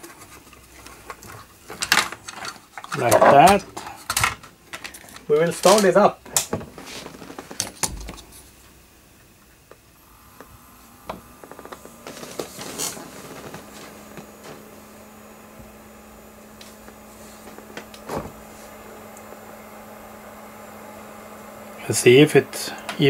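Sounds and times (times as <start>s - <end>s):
computer fans humming: 1.2s - 23.0s.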